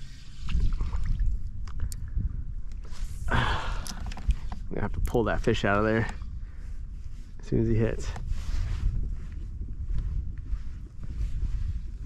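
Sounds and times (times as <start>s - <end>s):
low rumble of water: 0.0s - 7.4s
wind: 0.0s - 12.0s
light clicks of gear: 3.6s - 6.2s.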